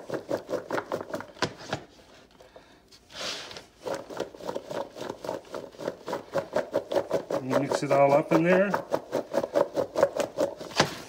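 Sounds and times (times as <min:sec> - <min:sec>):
vegetables rattling in a shaken bowl: 0:00.0 - 0:01.4, 0:03.7 - 0:11.0.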